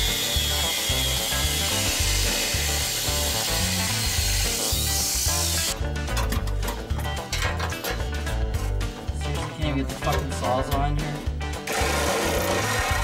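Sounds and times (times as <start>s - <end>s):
angle grinder cutting steel pipe: 0.0s - 5.8s, 11.6s - 13.0s
background music with bass line: 0.0s - 13.0s.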